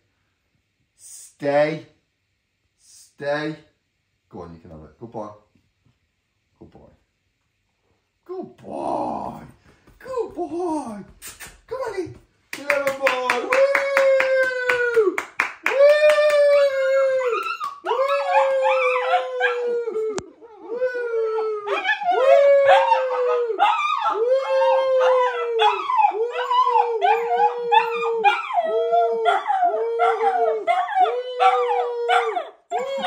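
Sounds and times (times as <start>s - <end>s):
puppy howling: 13.3s - 33.0s.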